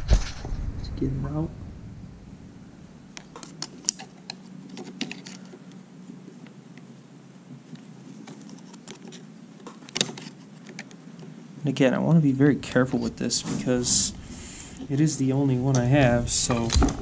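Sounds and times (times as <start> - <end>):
plastic clicks and scrapes: 3.2 - 5.7, 7.7 - 11.3.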